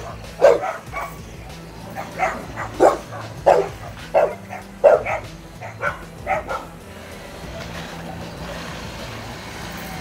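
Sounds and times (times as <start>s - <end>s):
dog barking: 0.0s - 1.2s, 1.9s - 6.7s.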